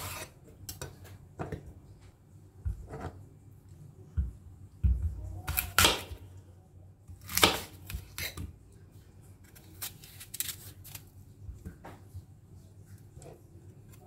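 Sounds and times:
knife cutting apple: 0:00.0 - 0:00.9, 0:05.0 - 0:06.2, 0:07.1 - 0:08.6, 0:09.4 - 0:11.1
knife knocks and scrapes on wood: 0:02.6 - 0:03.2.

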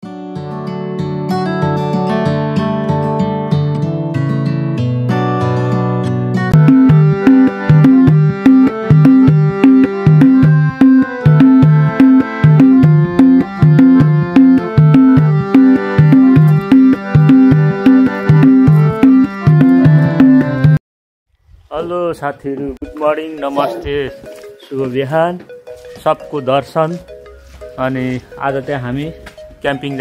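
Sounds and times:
intro music with low rhythm: 0:06.5 - 0:20.8, 0:22.6 - 0:30.0.

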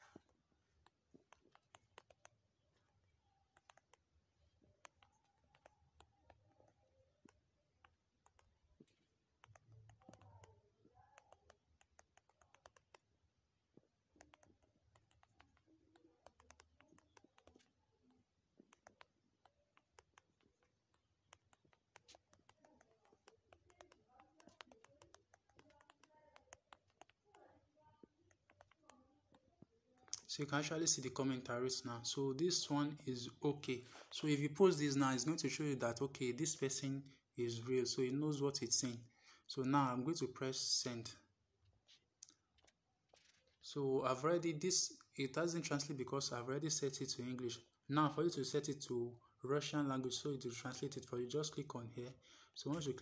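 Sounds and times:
typing taps on smartphone: 0:04.6 - 0:13.1, 0:14.2 - 0:27.4, 0:28.0 - 0:29.4.

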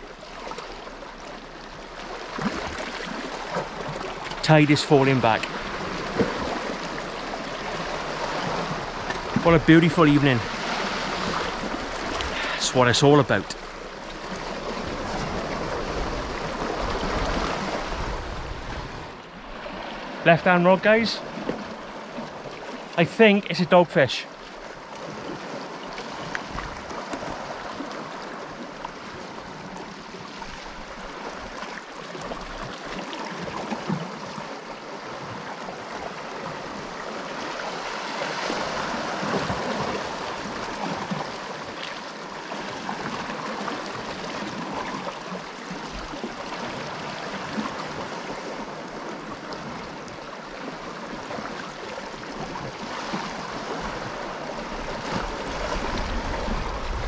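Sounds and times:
sea washing against rocks: 0:02.2 - 0:21.4, 0:52.2 - 0:57.0.

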